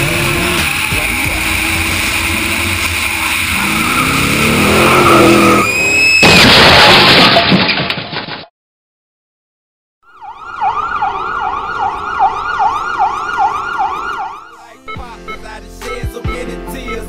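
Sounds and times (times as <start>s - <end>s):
motorcycle engine accelerating: 0.0s - 5.8s
loud harsh rush of noise: 0.0s - 6.2s
tyre squeal: 0.0s - 6.3s.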